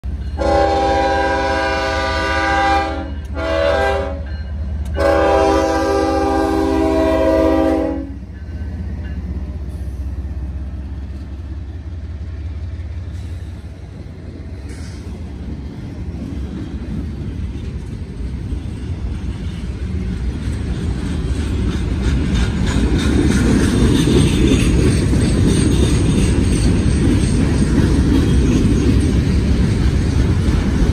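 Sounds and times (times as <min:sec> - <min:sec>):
freight train wheels rumbling: 0:00.0 - 0:30.9
locomotive horn blasts: 0:00.4 - 0:04.3, 0:05.0 - 0:08.2
wheels clattering on rails: 0:08.3 - 0:30.9.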